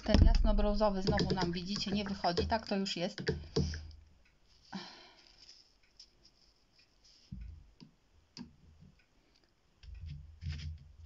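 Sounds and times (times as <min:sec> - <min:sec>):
faint clicks and soft knocks: 0:05.2 - 0:11.0.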